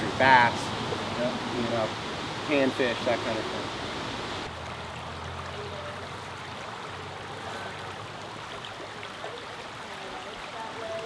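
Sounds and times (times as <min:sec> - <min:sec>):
stream flowing over rocks: 0:00.0 - 0:11.0.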